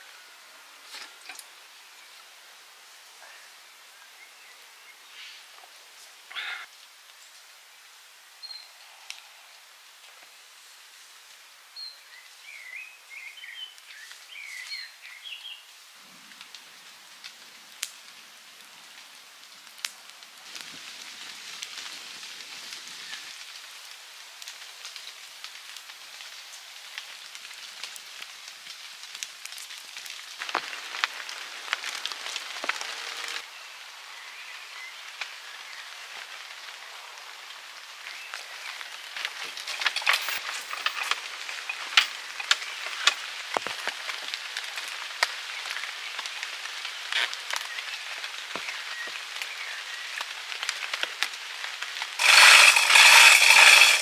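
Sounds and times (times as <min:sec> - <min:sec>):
rain hiss: 0:00.0 - 0:54.0.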